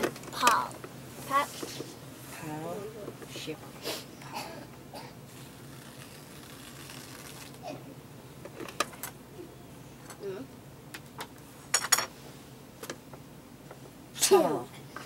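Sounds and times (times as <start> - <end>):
room hum: 0.0 - 15.0
tissue paper rustling: 5.3 - 7.6
short crackle: 5.5 - 7.6.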